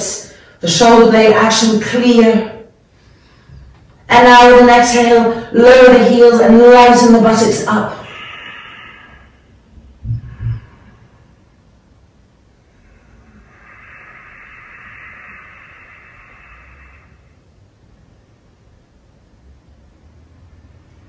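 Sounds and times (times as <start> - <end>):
person breathing slowly: 2.9 - 3.8, 8.0 - 11.6, 12.6 - 17.6
soft low thumps: 9.8 - 10.9.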